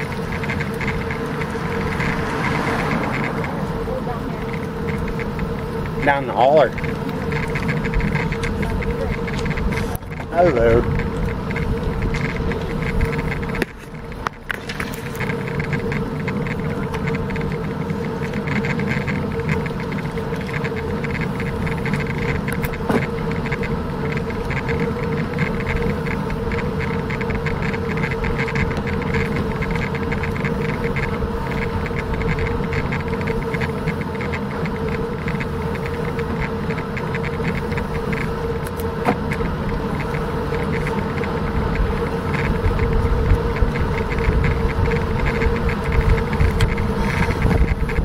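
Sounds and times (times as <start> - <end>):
wind rushing over microphone: 0.0 - 17.6, 39.3 - 48.0
steady hum: 0.0 - 48.0.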